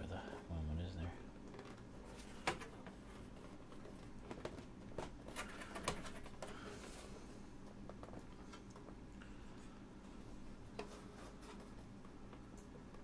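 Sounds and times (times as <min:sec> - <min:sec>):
hands clicking plastic cover: 0:03.8 - 0:06.6.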